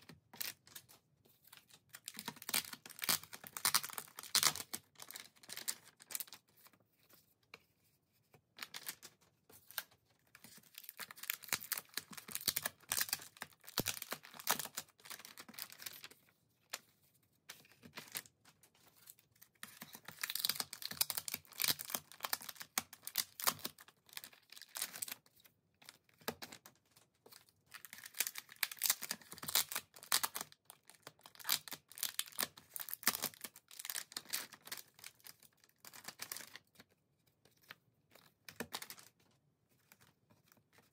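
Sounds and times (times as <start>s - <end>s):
plastic pouches rustling and tearing: 1.9s - 6.4s, 10.4s - 16.1s, 19.6s - 25.2s, 27.7s - 36.6s.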